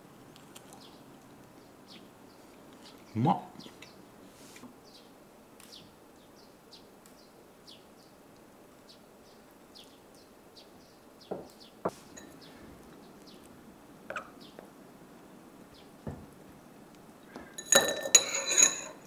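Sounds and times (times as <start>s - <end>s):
small birds chirping: 0.2s - 17.7s
metal spoon clinking ceramic cup: 12.1s - 12.4s, 17.6s - 19.0s.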